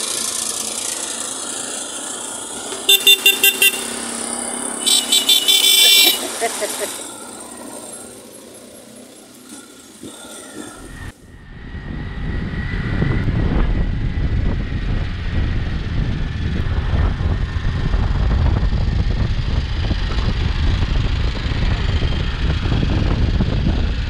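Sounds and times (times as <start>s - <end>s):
vehicle engine and tyre rumble: 0.0s - 24.0s
wind buffeting microphone: 10.9s - 24.0s.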